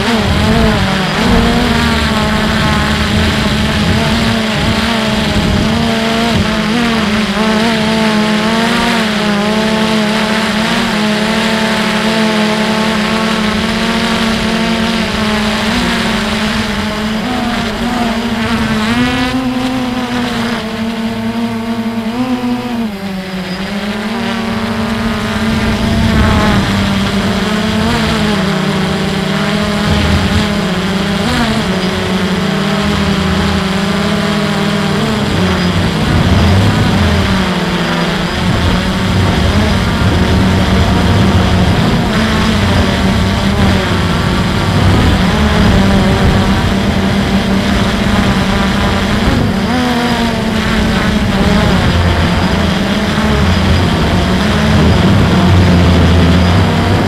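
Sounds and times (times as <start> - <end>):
wind rumble on microphone: 0.0 - 9.4, 23.9 - 57.0
drone propellers whirring: 0.0 - 57.0.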